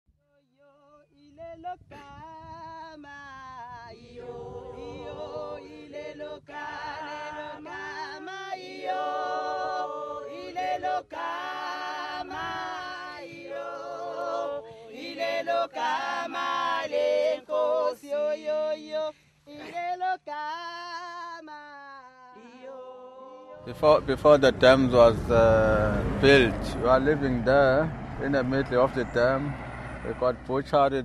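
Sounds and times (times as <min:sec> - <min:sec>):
unaccompanied choir singing: 0:03.8 - 0:20.2, 0:22.3 - 0:30.1.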